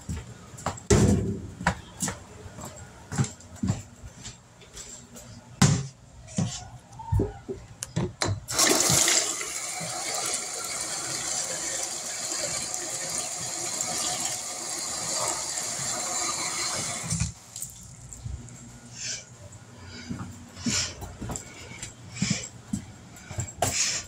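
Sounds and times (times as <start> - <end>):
faucet filling plastic jug: 8.5 - 17.7.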